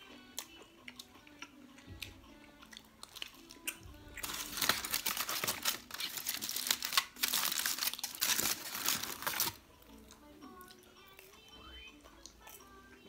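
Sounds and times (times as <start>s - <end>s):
aluminium foil crinkling: 4.2s - 9.6s.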